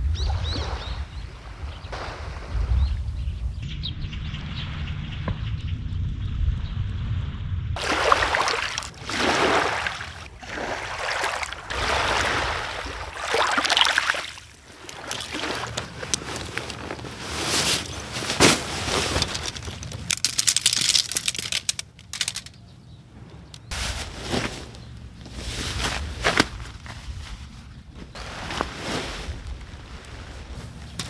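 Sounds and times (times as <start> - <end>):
waves washing over pebbles: 7.8 - 16.5
nylon rustling: 7.8 - 22.5
camping gear clicks and knocks: 14.8 - 22.7.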